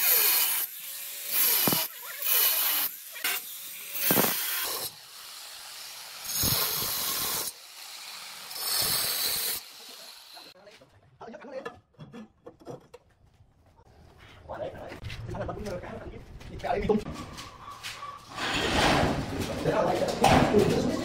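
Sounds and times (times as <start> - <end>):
angle grinder running: 0.0 - 10.6
grinder disc cutting stone: 0.0 - 10.6.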